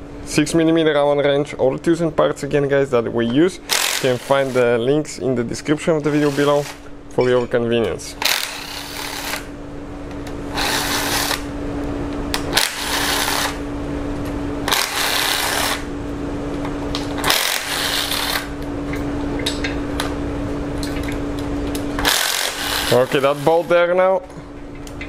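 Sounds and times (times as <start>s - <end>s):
power driver whirring: 3.6s - 4.7s, 8.2s - 9.5s, 10.5s - 11.5s.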